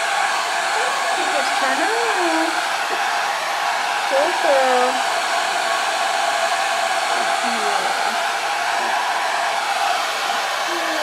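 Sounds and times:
hair dryer running: 0:00.0 - 0:11.0.

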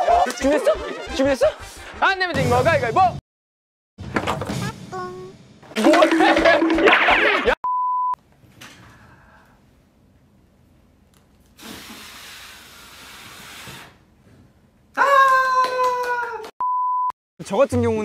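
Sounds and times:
censor beep: 0:07.6 - 0:08.2, 0:16.6 - 0:17.1.

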